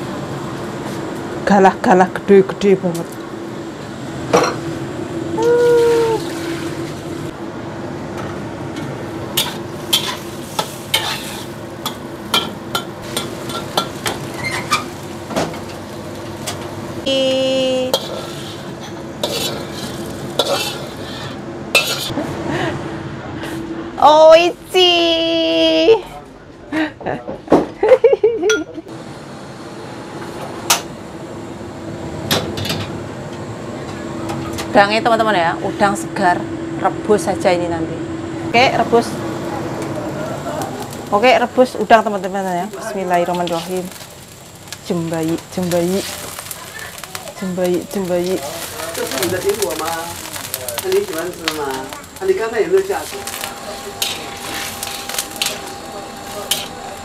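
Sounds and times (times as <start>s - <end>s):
steady hum: 0.0s - 27.0s, 27.7s - 57.0s
cabbage sizzling: 5.4s - 7.3s, 9.2s - 22.2s, 40.0s - 57.0s
metal spatula scraping a wok: 9.4s - 15.0s, 17.8s - 22.2s, 52.8s - 57.0s.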